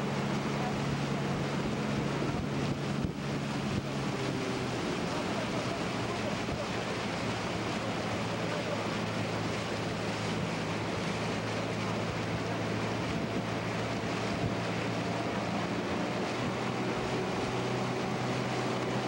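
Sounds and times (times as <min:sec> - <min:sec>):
boat motor humming: 0:00.0 - 0:19.0
water rushing along hull: 0:00.0 - 0:19.0
wind buffeting microphone: 0:00.3 - 0:19.0.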